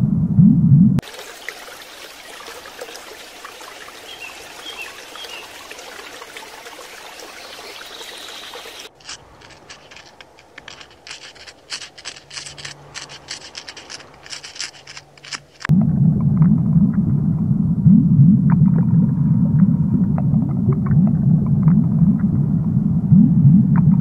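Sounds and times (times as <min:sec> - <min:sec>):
aquarium water hiss: 0:01.0 - 0:08.9
faint bubbling chirps: 0:01.0 - 0:09.0
animals crunching in snow: 0:07.4 - 0:15.7.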